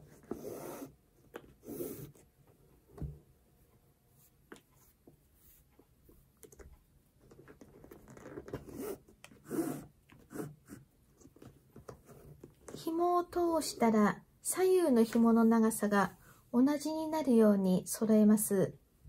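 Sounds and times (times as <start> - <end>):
shoelace rustling and scraping: 4.1 - 10.2.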